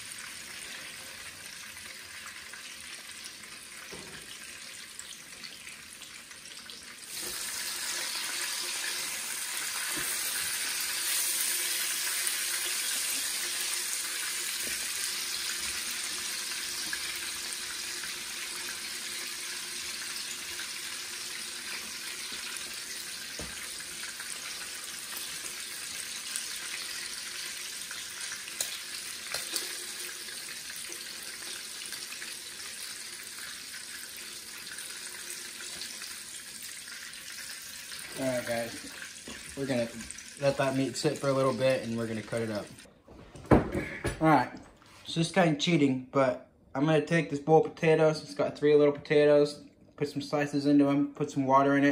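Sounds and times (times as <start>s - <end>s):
meat sizzling in a skillet: 0.0s - 42.8s.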